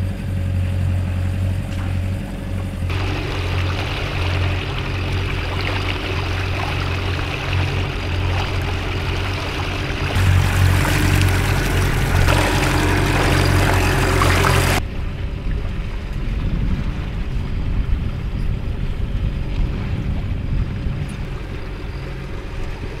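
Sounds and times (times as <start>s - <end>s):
outboard motor running: 0.0s - 15.3s, 18.6s - 23.0s
water rushing and splashing: 0.5s - 18.0s.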